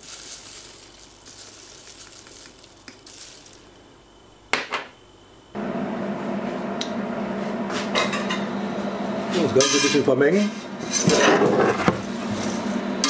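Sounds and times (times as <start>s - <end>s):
sugar granules falling hiss: 0.0s - 4.2s
induction hob hum: 3.8s - 13.0s.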